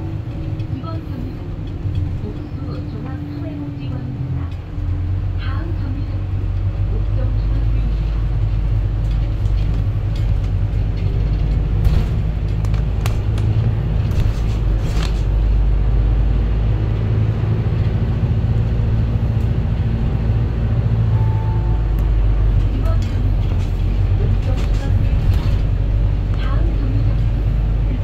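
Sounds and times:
bus engine and road rumble: 0:00.0 - 0:28.0
rattles and knocks: 0:09.0 - 0:15.4.

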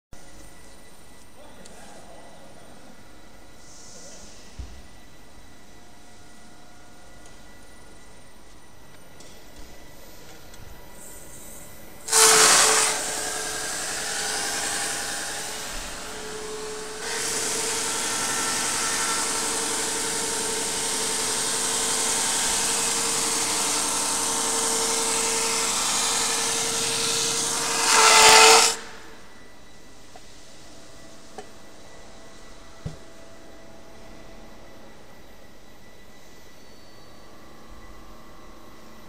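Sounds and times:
constant machine hum: 0:00.2 - 0:39.0
brushing machine grinding wood: 0:12.1 - 0:29.1.

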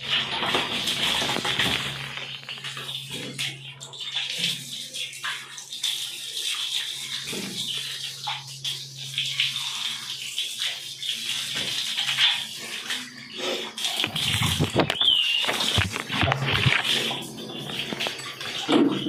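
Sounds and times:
shower water splashing on dog: 0:00.0 - 0:19.0.

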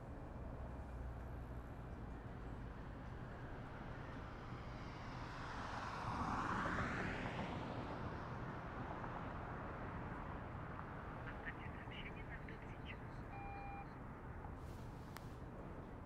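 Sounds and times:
low rumble of traffic: 0:00.0 - 0:16.0.

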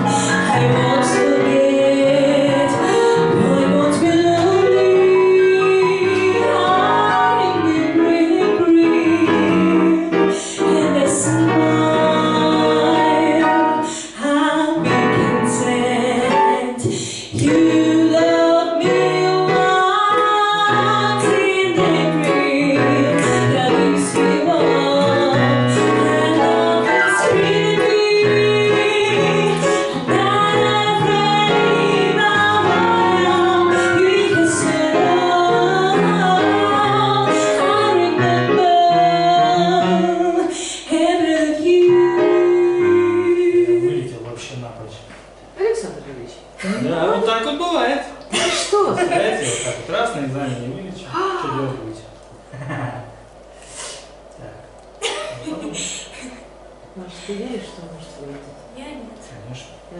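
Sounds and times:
woman singing into microphone: 0:00.0 - 0:44.1
digital piano: 0:00.0 - 0:48.2.

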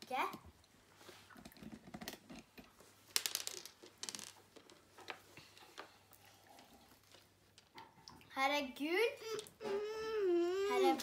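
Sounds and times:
candies clicking on wooden floor: 0:01.4 - 0:06.0.

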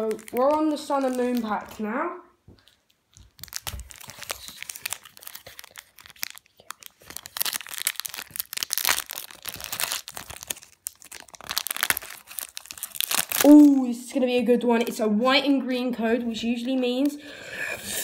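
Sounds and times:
foil wrapper crinkling and tearing: 0:00.0 - 0:02.0, 0:02.6 - 0:14.0.

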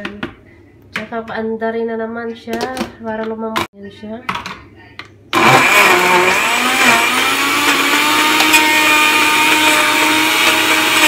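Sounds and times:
blender motor running: 0:05.4 - 0:11.0.

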